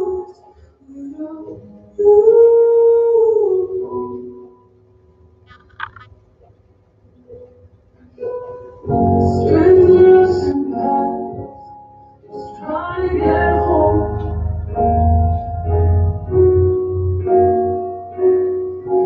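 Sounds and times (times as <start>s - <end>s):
woman singing with instrumental backing: 0.0s - 4.4s, 8.9s - 11.7s, 12.3s - 14.8s.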